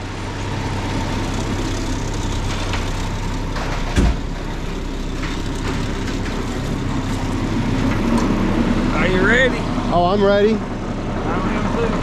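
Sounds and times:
diesel engine running: 0:00.0 - 0:12.0
thump: 0:03.9 - 0:04.3.

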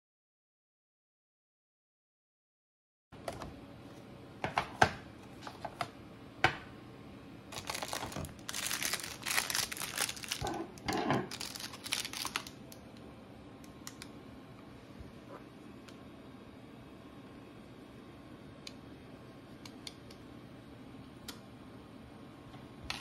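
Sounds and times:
plastic wrapping crinkling: 0:07.5 - 0:12.7
plastic packets clicking: 0:07.5 - 0:12.8.

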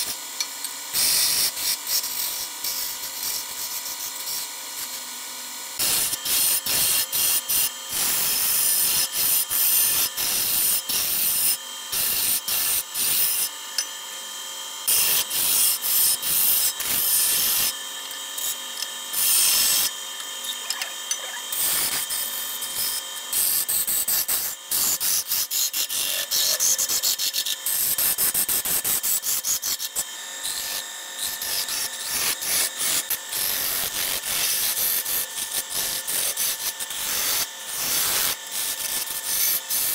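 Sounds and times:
lathe humming: 0:00.2 - 0:39.9
turning tool scraping wood: 0:14.8 - 0:39.9.

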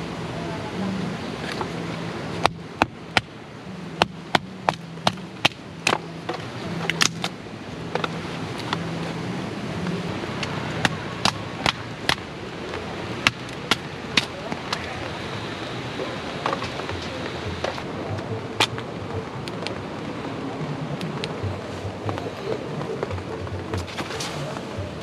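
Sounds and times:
hatchet chopping firewood: 0:02.4 - 0:03.4, 0:04.0 - 0:08.8, 0:10.4 - 0:12.3, 0:13.2 - 0:15.0, 0:18.6 - 0:18.8.

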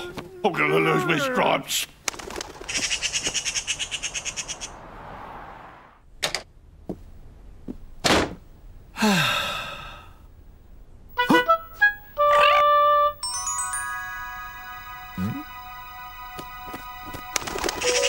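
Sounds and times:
cartoon wings flapping: 0:02.0 - 0:04.7
thunk: 0:08.0 - 0:08.4
man sighing: 0:09.0 - 0:10.2
chiming jingle: 0:13.2 - 0:18.0.

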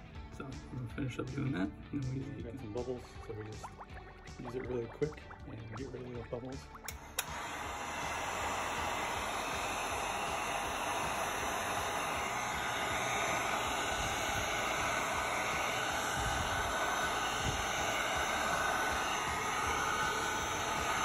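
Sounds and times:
heat gun blowing air: 0:06.9 - 0:21.0.

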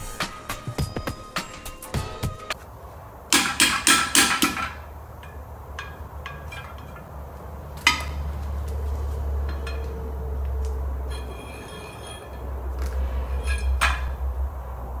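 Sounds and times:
hammer striking chisel on metal: 0:03.3 - 0:06.9.

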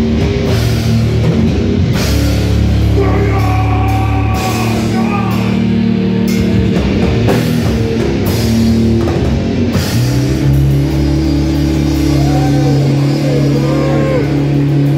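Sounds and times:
drums and cymbals: 0:00.0 - 0:14.9
heavy metal band playing: 0:00.0 - 0:14.9.

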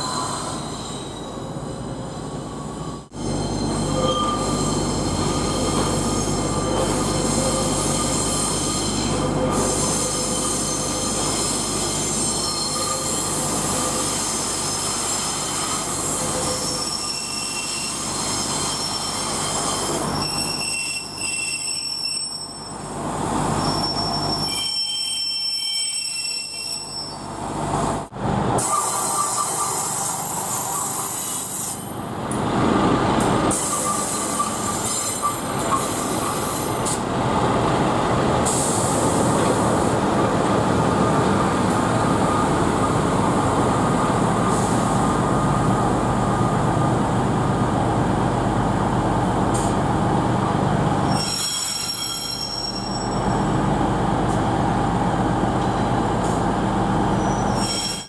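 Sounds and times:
train wheel squeal: 0:00.0 - 0:27.6, 0:28.6 - 0:32.1, 0:33.5 - 0:37.1, 0:51.0 - 0:53.7, 0:57.0 - 0:58.0
rail noise: 0:00.0 - 0:58.0.

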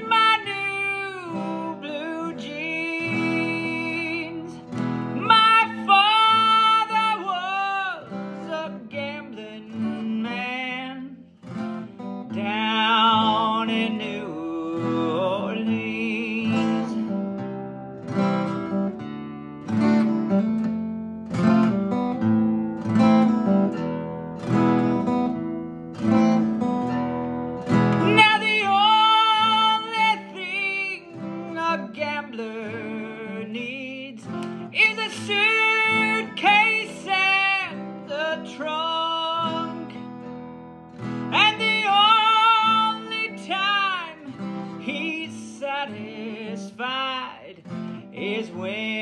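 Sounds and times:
acoustic guitar chords: 0:00.0 - 0:49.0
man singing: 0:12.3 - 0:17.0, 0:41.4 - 0:49.0.

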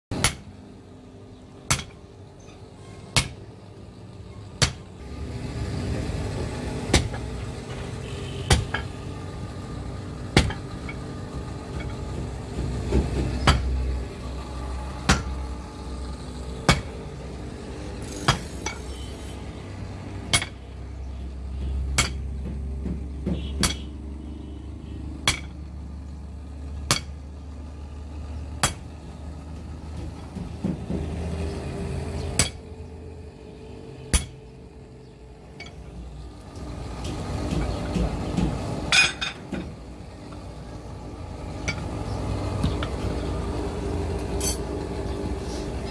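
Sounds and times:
hammer striking metal on anvil: 0:00.1 - 0:00.6, 0:01.7 - 0:02.0, 0:03.1 - 0:03.4, 0:06.9 - 0:07.3, 0:08.5 - 0:09.0, 0:10.3 - 0:11.0, 0:15.0 - 0:15.4, 0:16.6 - 0:17.0, 0:20.3 - 0:20.7, 0:21.6 - 0:22.6, 0:23.2 - 0:24.0, 0:25.2 - 0:25.6, 0:26.8 - 0:27.2, 0:28.6 - 0:28.9, 0:32.3 - 0:32.7, 0:34.1 - 0:34.5, 0:41.6 - 0:41.9.

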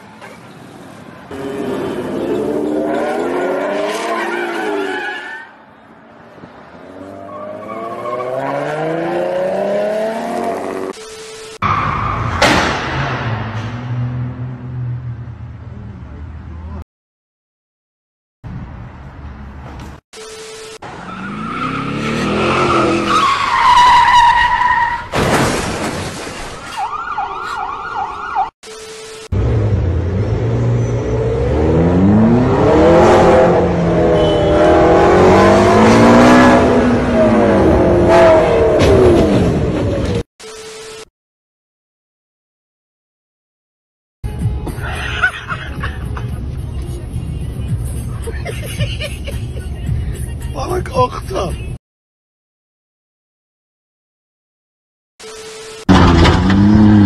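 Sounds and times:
tyres screeching: 0:20.9 - 0:25.1
siren wailing: 0:26.7 - 0:28.6
car engine revving: 0:29.4 - 0:40.0, 0:55.9 - 0:57.0.

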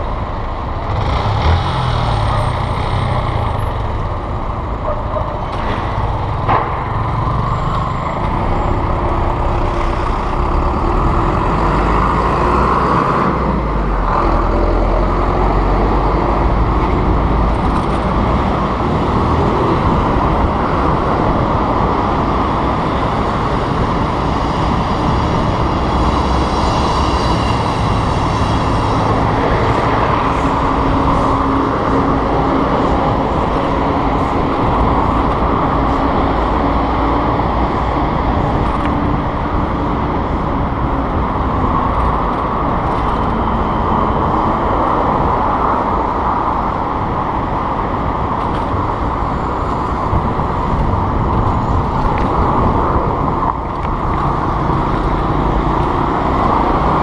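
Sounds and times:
city street traffic: 0:00.0 - 0:57.0
wind rushing on microphone: 0:08.3 - 0:57.0.

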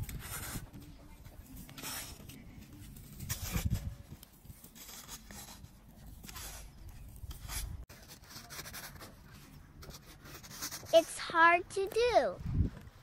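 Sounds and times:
plastic shovel scraping sand: 0:00.0 - 0:00.8, 0:01.5 - 0:09.1.

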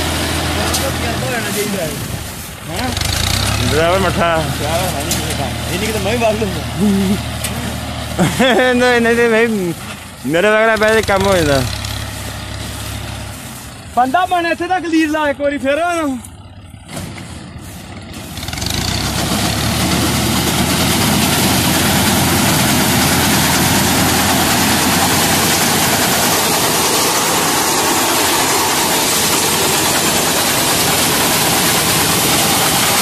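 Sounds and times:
tractor engine running: 0:00.0 - 0:33.0.

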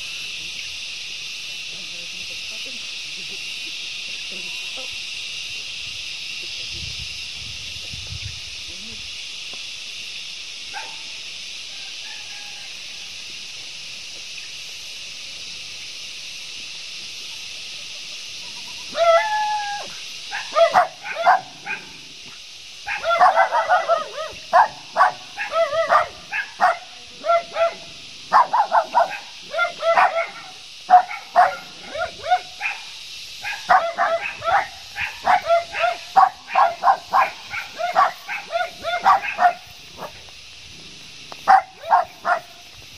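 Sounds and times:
steady high hiss: 0:00.0 - 0:42.9
animal high-pitched cries: 0:18.4 - 0:21.8.

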